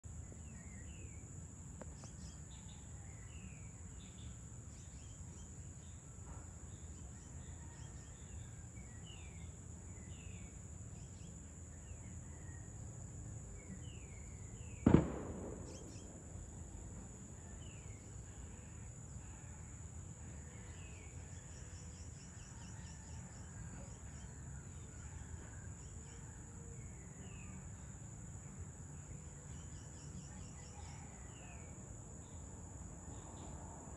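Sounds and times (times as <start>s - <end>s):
firecracker bang: 14.8s - 17.0s.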